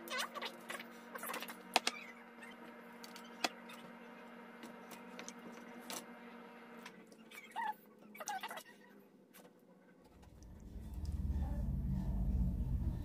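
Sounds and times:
steady low hum: 10.1s - 13.0s.

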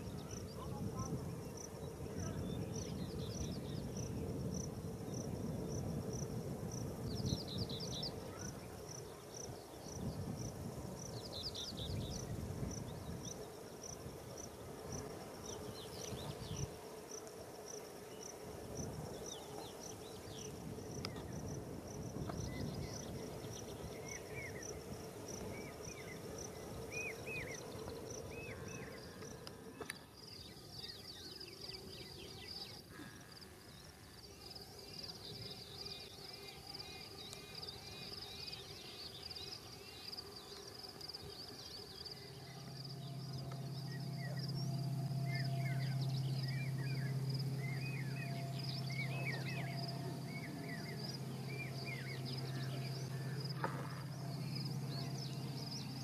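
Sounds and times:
insect chirping: 0.0s - 56.0s
low uneven rumble: 42.3s - 56.0s.

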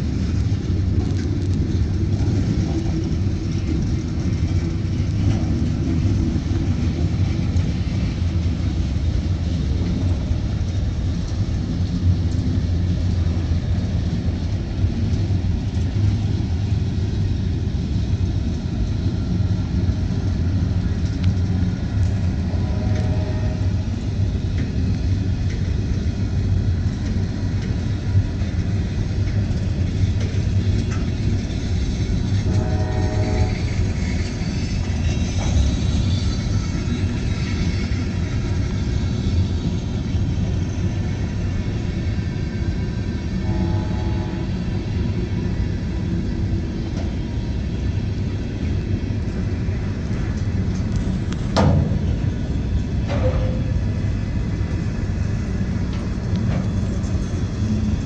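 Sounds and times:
freight train wheels rumbling on rails: 0.0s - 58.0s.

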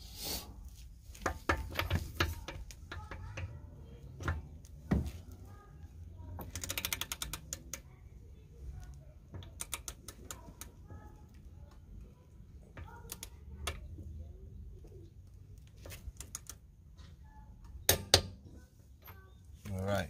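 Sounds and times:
torque wrench knocks and clicks: 1.2s - 5.1s, 6.3s - 7.8s, 9.3s - 10.7s
ratchet clicks: 6.4s - 7.9s, 9.4s - 10.7s.

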